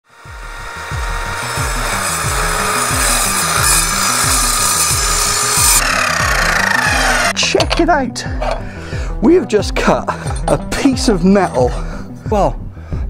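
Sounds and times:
mitre saw cutting steel tube: 0.0 - 7.8.

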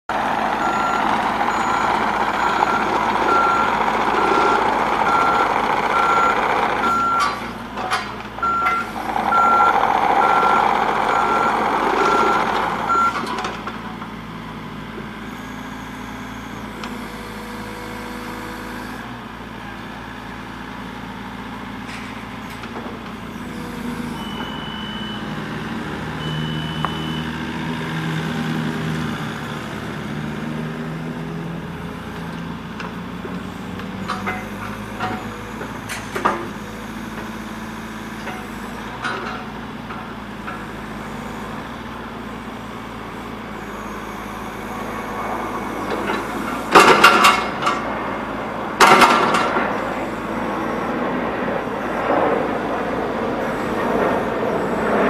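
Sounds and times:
excavator diesel engine running: 0.1 - 55.0
travel alarm short beeps: 0.5 - 7.4, 8.4 - 13.4, 24.1 - 25.4, 26.2 - 27.5.

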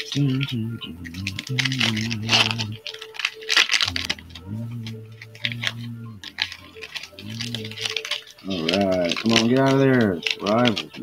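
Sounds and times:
wrapper crinkling and tearing: 0.0 - 11.0
low humming tones: 0.2 - 3.2, 3.8 - 9.2.

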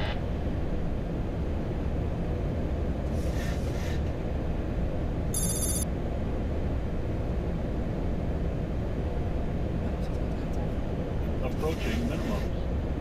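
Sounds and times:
air and engine rush: 0.0 - 13.0
high electronic warning tone: 5.4 - 5.8.

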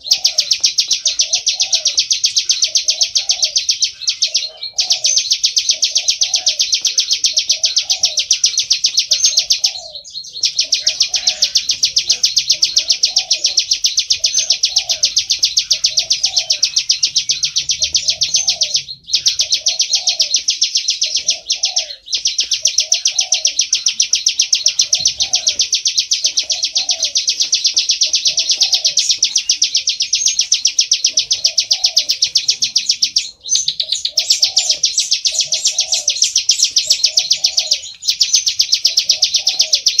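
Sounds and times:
bird singing rapid high notes: 0.0 - 40.0.

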